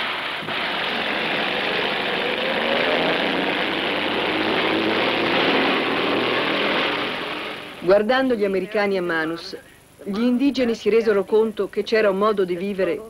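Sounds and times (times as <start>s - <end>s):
bulldozer engine running: 0.0s - 9.4s.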